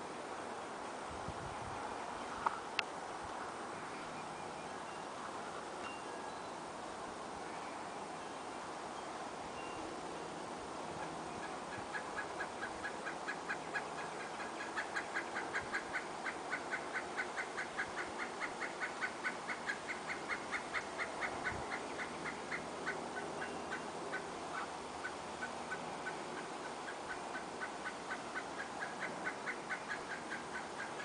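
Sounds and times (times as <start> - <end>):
woodpecker call notes: 11.0 - 31.0.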